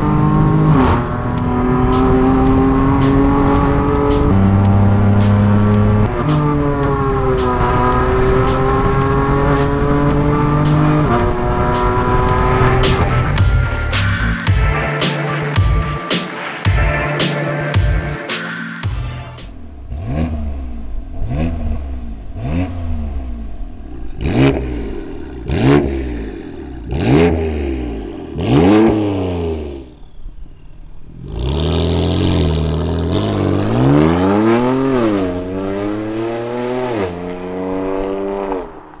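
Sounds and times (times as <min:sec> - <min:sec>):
car accelerating through gears: 0:00.0 - 0:13.5, 0:31.2 - 0:39.0
car engine revving: 0:00.0 - 0:30.1, 0:31.1 - 0:39.0.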